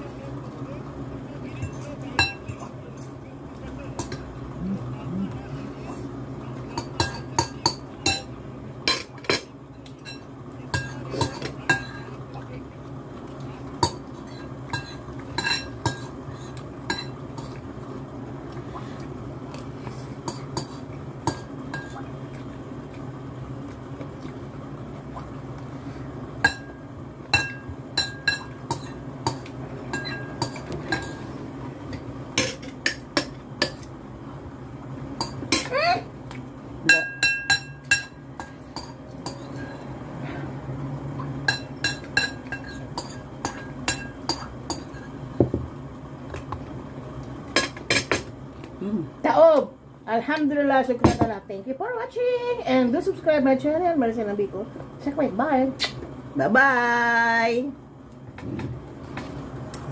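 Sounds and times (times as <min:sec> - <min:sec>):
steady low hum: 0:00.0 - 0:59.9
cutlery clinking on glass bowl: 0:13.8 - 0:16.1, 0:30.0 - 0:31.2, 0:36.9 - 0:39.8.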